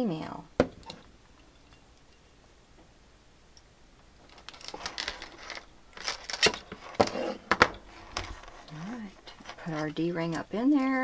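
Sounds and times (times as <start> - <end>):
small metal parts clinking: 4.2 - 7.3, 8.1 - 11.0.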